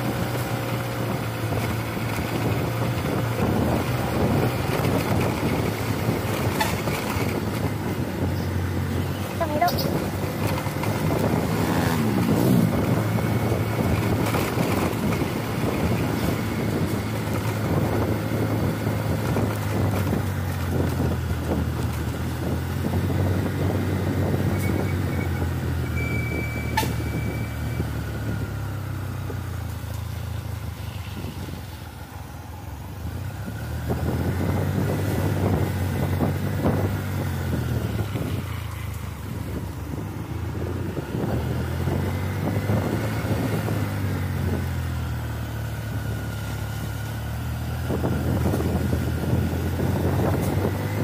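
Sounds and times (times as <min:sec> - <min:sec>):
diesel truck engine under load: 0:00.0 - 0:51.0.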